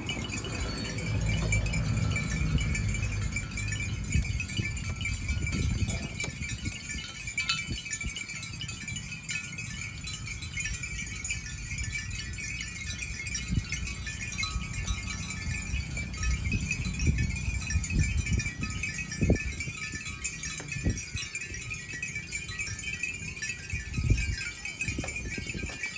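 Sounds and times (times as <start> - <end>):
animal bells jingling: 0.0 - 25.9.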